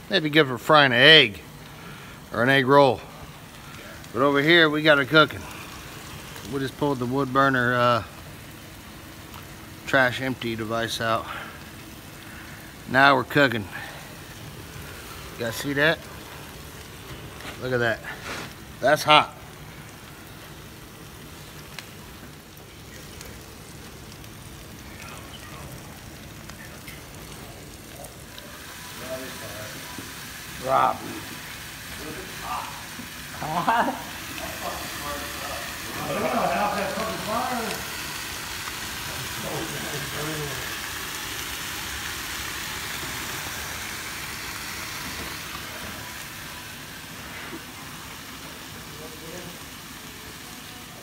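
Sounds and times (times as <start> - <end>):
steaks sizzling on a grill: 0.0 - 51.0
pops and crackles: 5.3 - 6.6, 9.2 - 9.6, 19.4 - 28.6.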